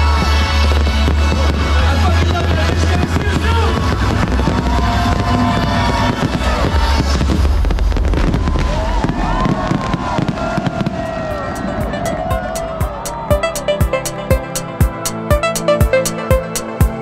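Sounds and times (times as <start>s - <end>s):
fireworks crackling and popping: 0.0s - 12.2s
electronic dance music: 11.4s - 17.0s.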